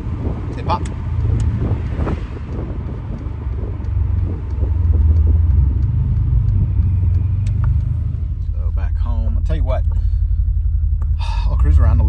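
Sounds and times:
wind buffeting microphone: 0.0s - 8.4s
car engine deep rumble: 0.0s - 12.0s.

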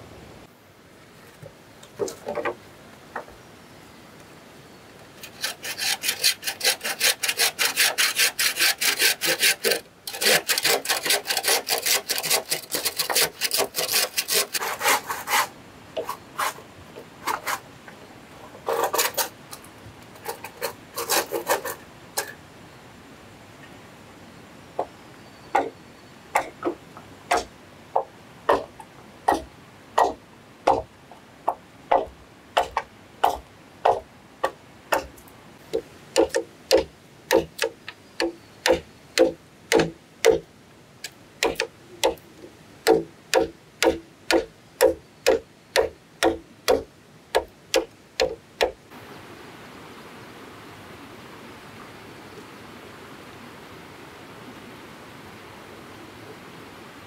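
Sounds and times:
flowing creek water: 23.0s - 57.0s
machete chopping bamboo: 26.4s - 27.5s, 29.3s - 30.9s, 36.2s - 40.4s, 41.4s - 42.2s, 42.9s - 48.8s.

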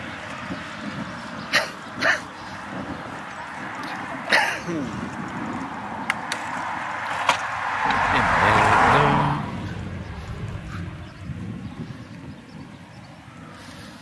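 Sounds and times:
vehicle passing by: 4.9s - 12.4s.

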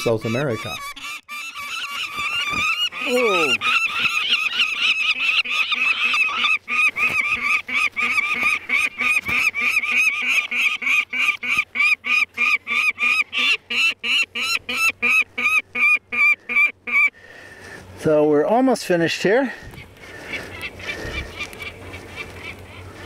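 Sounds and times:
young falcon harsh cries: 0.0s - 17.2s.

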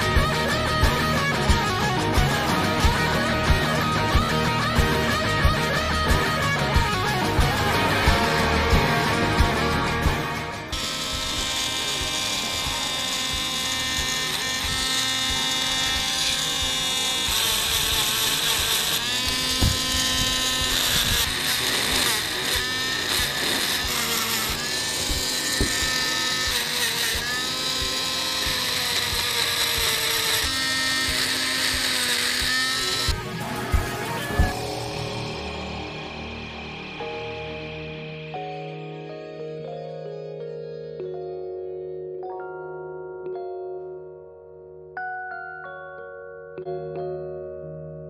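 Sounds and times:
rotary tool engraving stone: 0.0s - 5.2s, 7.4s - 35.4s.

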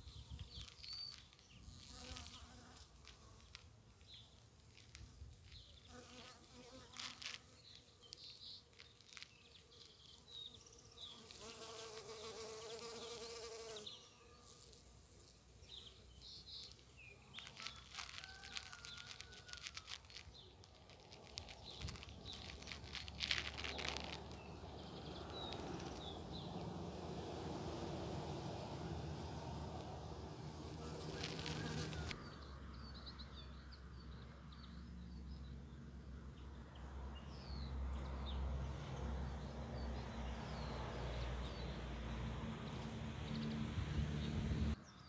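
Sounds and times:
bee buzzing in flight: 1.5s - 3.6s, 9.2s - 15.9s, 28.0s - 32.2s.

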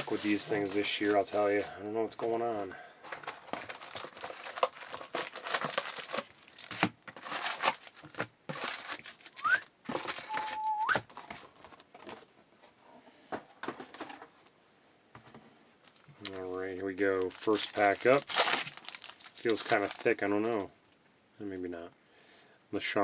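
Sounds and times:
foil packs crinkling: 0.0s - 2.4s, 3.0s - 12.2s, 15.8s - 20.7s.

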